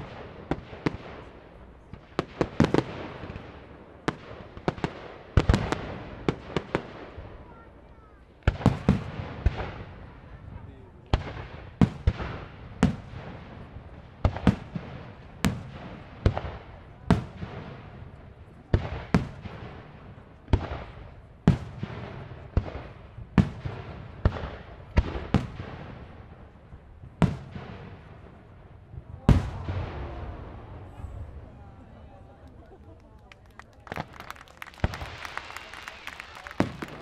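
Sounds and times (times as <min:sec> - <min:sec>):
firework shells bursting: 0:33.5 - 0:37.0.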